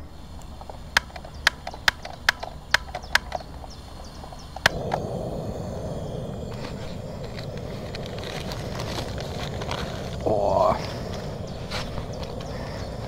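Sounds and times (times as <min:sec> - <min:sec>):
gas burner rushing: 0:00.0 - 0:13.0
gas grill igniter clicking: 0:00.2 - 0:09.6.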